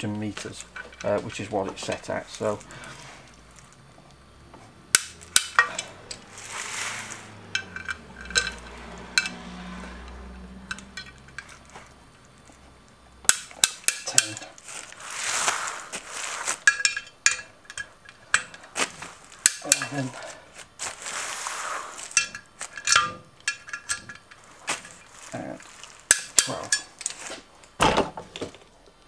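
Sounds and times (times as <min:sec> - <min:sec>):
torque wrench clicking: 0:04.9 - 0:06.3, 0:26.1 - 0:27.2.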